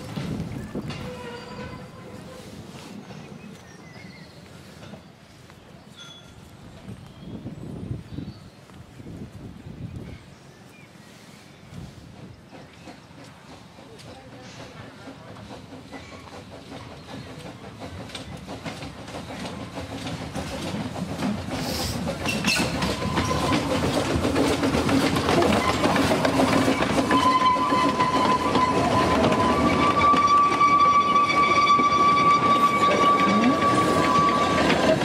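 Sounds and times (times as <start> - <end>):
wheels clicking over rail joints: 0.0 - 2.2, 12.2 - 35.0
steam train passing: 0.0 - 35.0.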